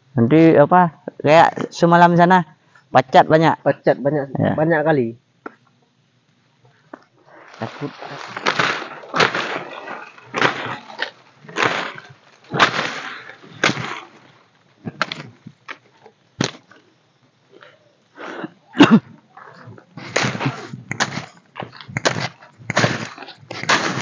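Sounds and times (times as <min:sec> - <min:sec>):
stems and twigs snapping: 0:07.4 - 0:15.8
machete slashing vegetation: 0:07.6 - 0:14.2, 0:22.0 - 0:24.0.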